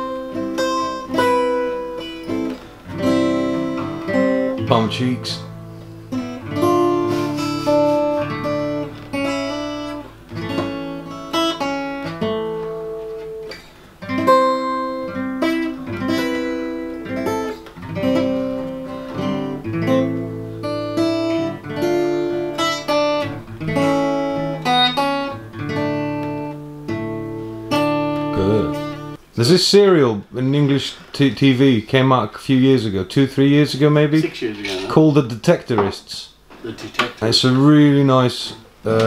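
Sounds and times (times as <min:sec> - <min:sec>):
acoustic guitar playing: 0:00.0 - 0:29.6.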